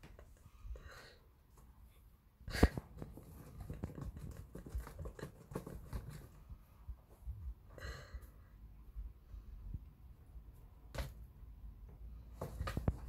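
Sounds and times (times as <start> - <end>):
cat scratching cardboard: 2.6 - 6.6, 12.3 - 13.0.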